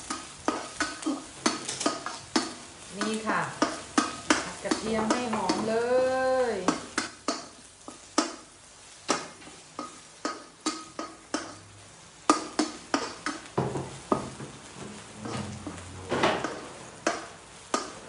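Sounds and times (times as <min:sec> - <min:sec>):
garlic sizzling in oil: 0:00.0 - 0:18.0
metal spatula scraping wok: 0:12.3 - 0:18.0.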